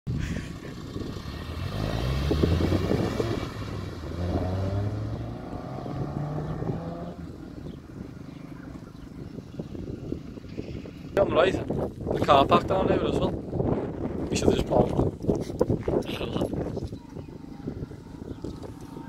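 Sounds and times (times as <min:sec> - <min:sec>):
car engine accelerating hard: 0:00.5 - 0:10.4.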